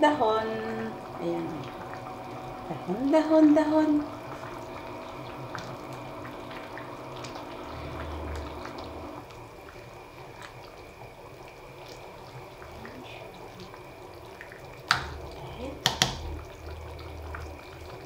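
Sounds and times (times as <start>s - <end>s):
broth sloshing and dripping: 0.0s - 18.0s
utensil clicking on pot: 15.8s - 16.2s.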